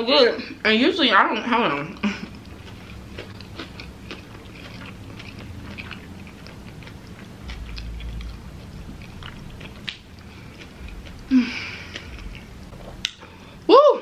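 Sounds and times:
person chewing with wet mouth clicks: 2.2s - 13.3s.

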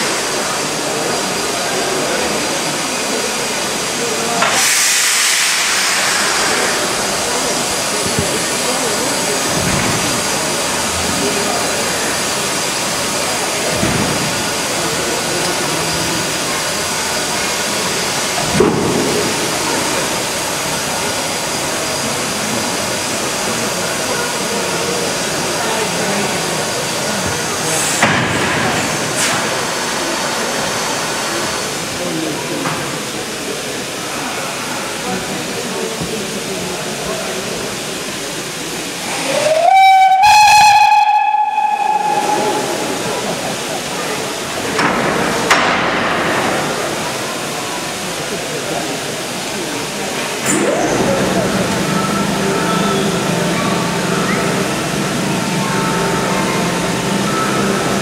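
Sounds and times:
steam engine venting steam: 0.0s - 58.0s
steam whistle: 39.1s - 43.0s.

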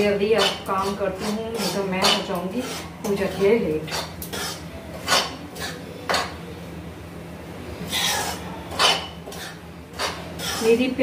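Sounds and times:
metal spatula scraping a metal pan: 0.3s - 5.8s, 7.9s - 11.0s.

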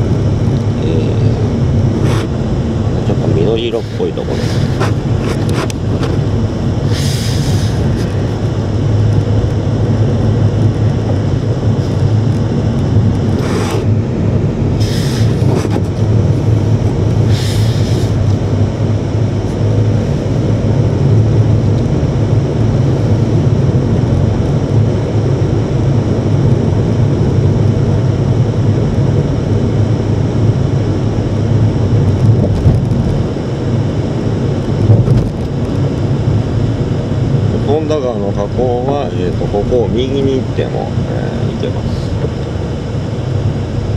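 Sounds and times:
car interior road rumble: 0.0s - 43.9s
short hissing sounds: 6.9s - 7.8s, 14.8s - 15.4s, 17.3s - 18.2s.

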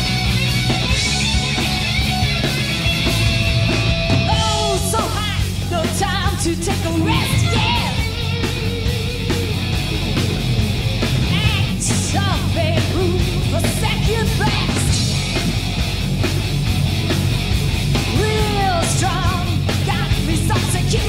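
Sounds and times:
heavy metal band playing: 0.0s - 21.0s
woman singing with vibrato: 4.3s - 8.0s, 11.3s - 14.9s, 18.1s - 21.0s.

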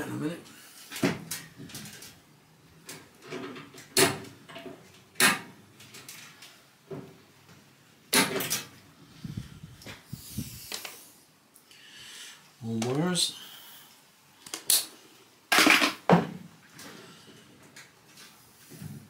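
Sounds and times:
microwave parts knocking and clattering: 2.8s - 7.2s, 8.1s - 8.8s, 15.5s - 16.5s.

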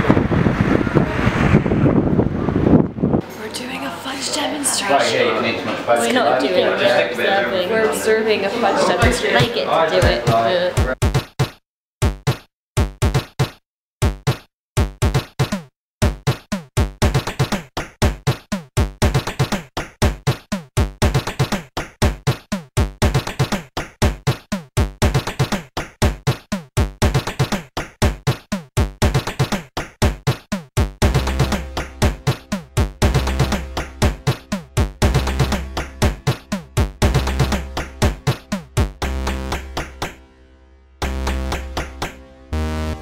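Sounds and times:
electronic music with drum-machine beat: 10.0s - 40.4s, 41.0s - 43.0s.

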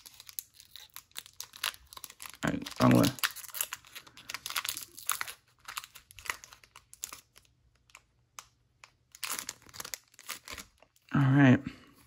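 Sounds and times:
foil wrapper crinkling and tearing: 0.0s - 11.1s.

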